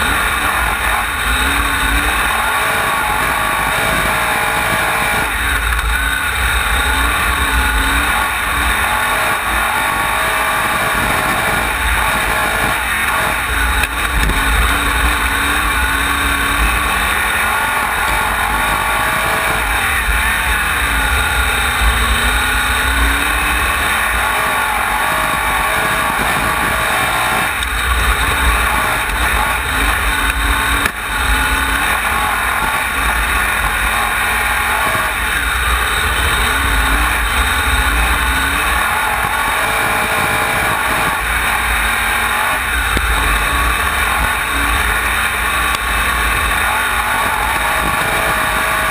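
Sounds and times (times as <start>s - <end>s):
race car engine revving: 0.0s - 48.9s.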